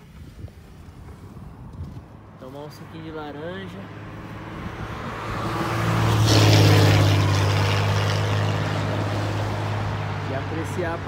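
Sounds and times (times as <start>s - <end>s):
vehicle passing by: 2.2s - 11.0s.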